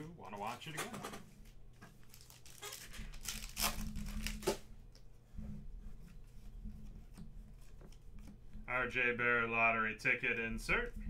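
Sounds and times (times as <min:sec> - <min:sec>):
cards rustling and ticking: 0:01.3 - 0:05.1
foil wrapper tearing and crinkling: 0:02.0 - 0:04.6.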